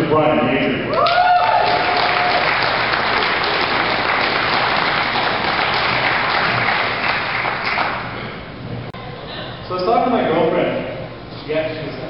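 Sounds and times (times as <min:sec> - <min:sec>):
audience applauding: 0:01.0 - 0:08.2.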